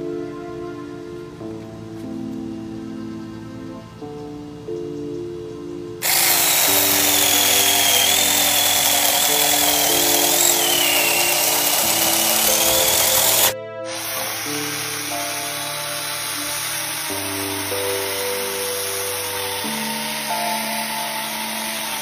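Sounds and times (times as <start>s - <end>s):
background music: 0.0s - 22.0s
mini chainsaw cutting wood: 6.0s - 22.0s.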